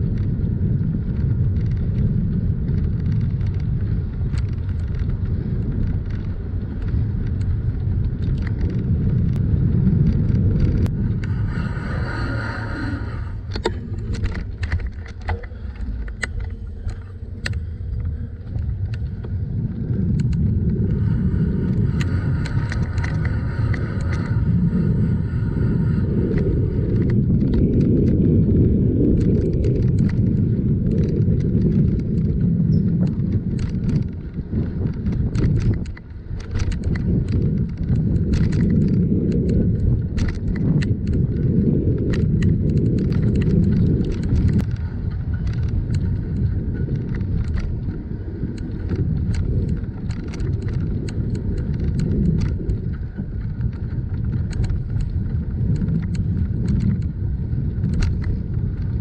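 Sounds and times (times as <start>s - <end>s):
bicycle rolling on pavement: 0.0s - 59.0s
light clicks and rattles: 1.0s - 28.4s, 29.0s - 59.0s.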